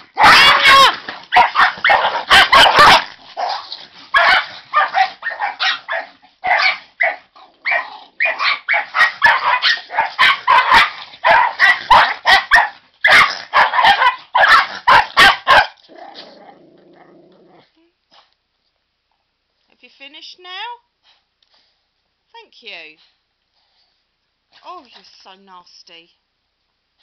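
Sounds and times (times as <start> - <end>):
dogs barking and snarling in play: 0.0 - 18.4.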